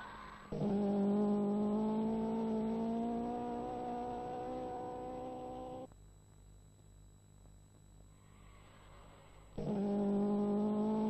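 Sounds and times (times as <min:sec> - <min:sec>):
car engine accelerating: 0:00.0 - 0:05.9, 0:09.6 - 0:11.0.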